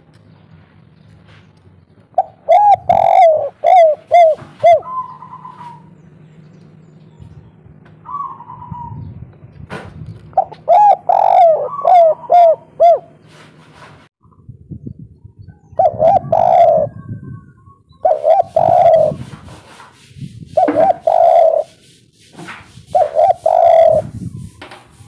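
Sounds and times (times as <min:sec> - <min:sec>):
dove cooing: 0:02.1 - 0:06.0, 0:08.0 - 0:09.1, 0:10.4 - 0:13.4, 0:15.7 - 0:19.7, 0:20.5 - 0:21.8, 0:22.9 - 0:24.2.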